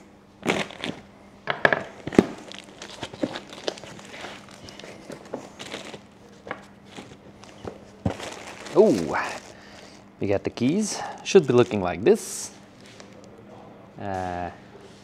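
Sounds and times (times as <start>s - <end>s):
wrappers and cardboard rustling: 0.4s - 1.1s, 1.9s - 13.3s.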